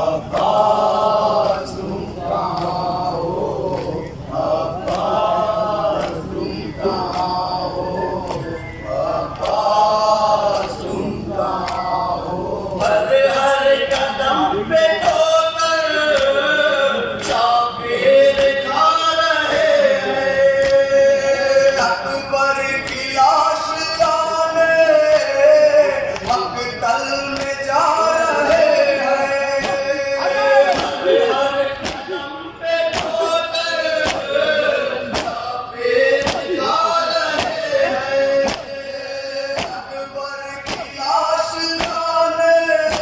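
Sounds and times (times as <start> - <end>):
men chanting into microphone: 0.0 - 43.0
chest-beating slaps: 31.8 - 32.2, 32.9 - 33.3, 33.9 - 34.3, 35.0 - 35.4, 36.1 - 36.6, 37.3 - 37.6, 38.4 - 38.7, 39.5 - 39.8, 40.6 - 41.0.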